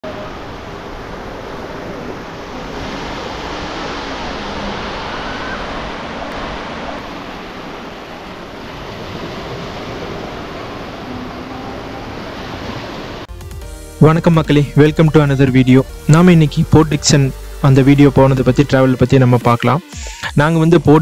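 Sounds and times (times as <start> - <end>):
sea waves washing onto beach: 0.0 - 13.3.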